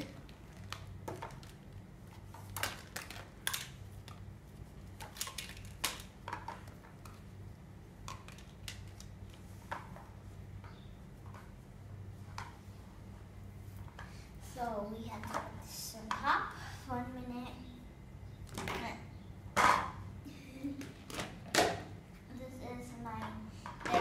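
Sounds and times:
low steady hum: 0.0s - 24.0s
plastic toy dishes clattering: 5.0s - 7.2s, 23.2s - 24.0s.

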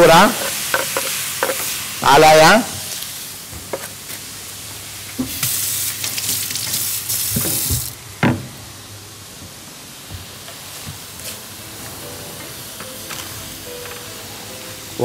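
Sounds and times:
meat sizzling in a frying pan: 0.0s - 8.2s.

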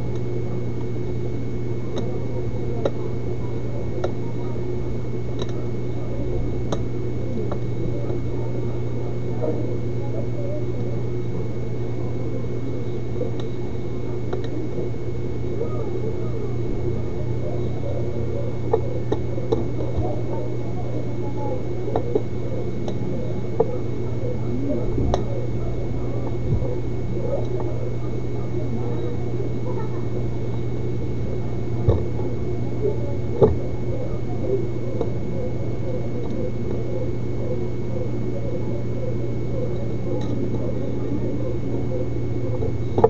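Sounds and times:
electrical hum with high whine: 0.0s - 43.0s.

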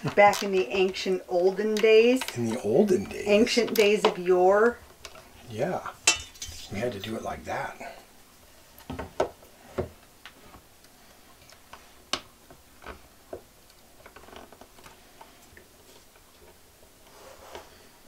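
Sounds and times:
metal tools tapping on wood: 6.1s - 6.5s.

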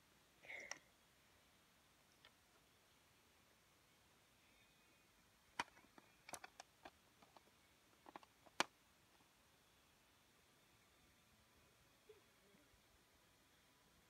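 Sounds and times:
plastic building bricks clicking: 5.6s - 8.7s.

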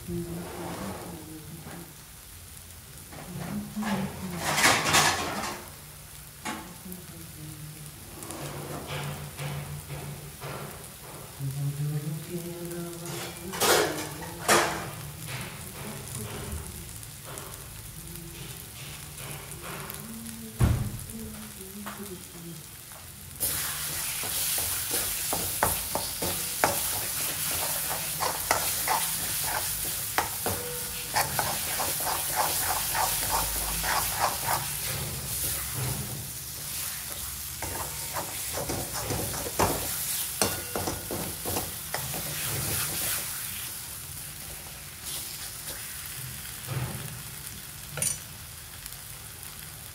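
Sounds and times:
food sizzling in oil: 0.0s - 49.9s
spoon knocking and scraping pan: 23.9s - 43.4s.

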